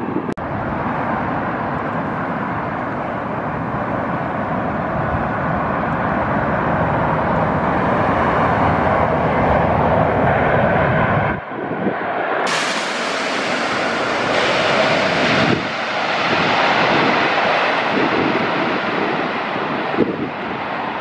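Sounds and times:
jet engine rumble: 0.0 - 21.0.

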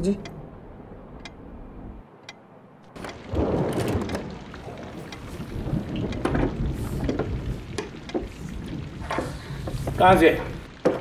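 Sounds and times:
rain falling: 2.1 - 11.0
thunder rumbling: 2.8 - 11.0.

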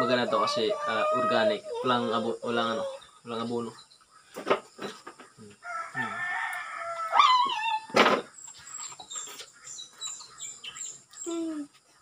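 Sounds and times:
rooster crowing: 5.6 - 7.9.

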